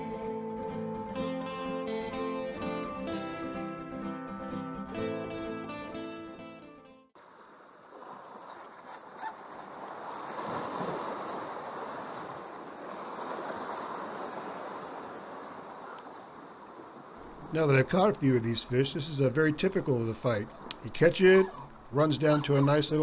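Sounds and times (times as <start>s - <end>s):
guitar music: 0.0s - 7.1s
ocean surf washing against rocks: 9.6s - 22.9s.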